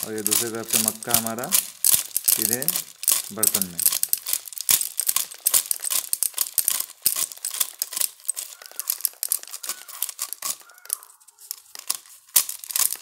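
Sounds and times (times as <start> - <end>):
corn kernels crackling off cob: 0.0 - 13.0
kernels dropping into basket: 0.0 - 13.0.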